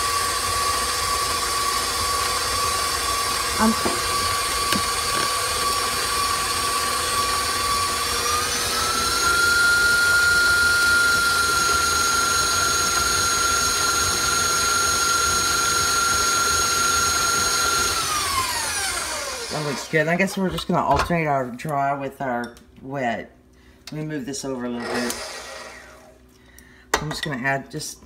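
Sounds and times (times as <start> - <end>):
stand mixer motor whining: 0.0 - 20.0, 24.8 - 26.1.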